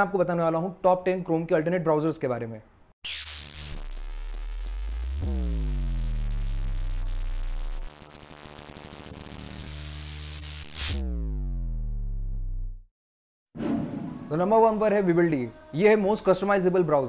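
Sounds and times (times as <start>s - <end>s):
deep bass drone: 3.8s - 12.9s
pulsing synth: 4.7s - 8.0s.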